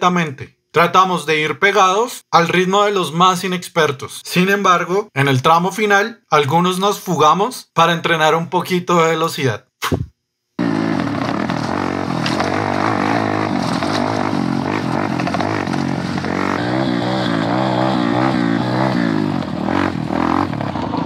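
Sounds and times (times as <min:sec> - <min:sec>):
dirt bike engine revving: 0:10.6 - 0:21.0.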